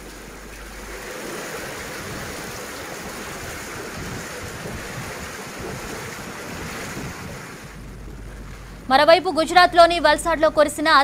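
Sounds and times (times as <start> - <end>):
floodwater rushing over road: 0.0 - 9.8
wind on microphone: 1.9 - 10.0.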